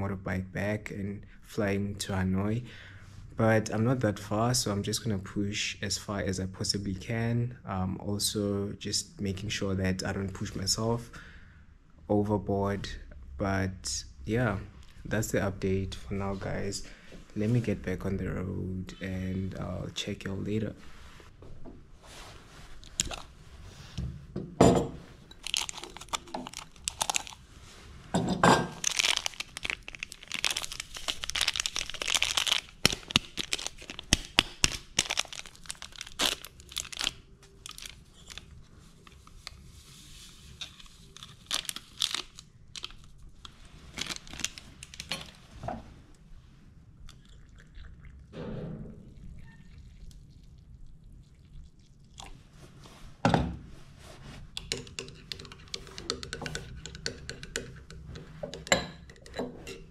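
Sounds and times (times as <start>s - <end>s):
plastic sachets crinkling: 22.8s - 23.4s, 25.3s - 27.5s, 28.8s - 45.3s.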